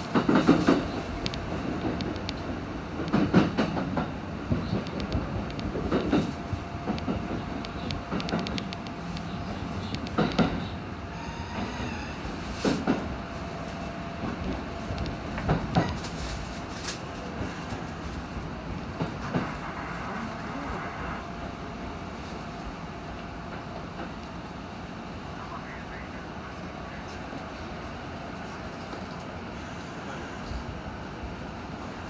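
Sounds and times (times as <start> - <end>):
train rumbling on track: 0.0 - 32.0.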